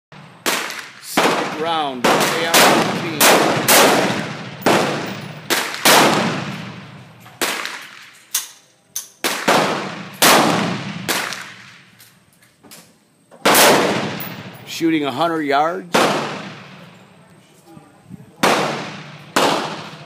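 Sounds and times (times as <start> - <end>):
faint distant gunshot cracks: 0.4 - 8.1, 9.2 - 11.9, 15.9 - 16.8, 18.4 - 20.0
rifle shots echoing: 0.4 - 8.2, 9.2 - 12.0, 13.4 - 14.8, 15.8 - 17.0, 18.4 - 20.0.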